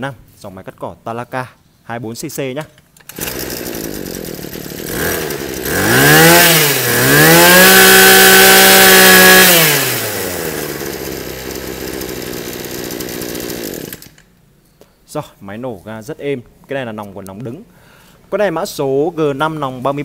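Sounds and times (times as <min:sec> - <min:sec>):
brush cutter engine revving: 0:03.0 - 0:14.2.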